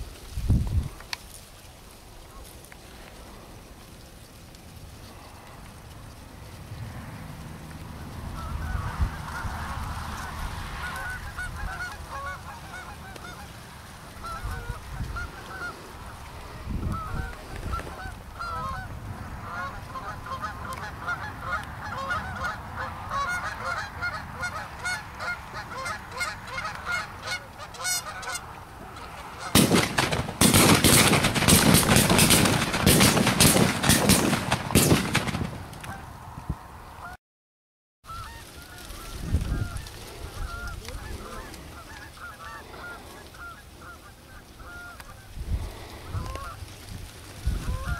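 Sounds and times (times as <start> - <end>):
geese honking: 7.5 - 36.2, 36.9 - 37.2, 38.0 - 46.8, 47.5 - 47.9
rapid run of sharp sounds: 29.6 - 35.6.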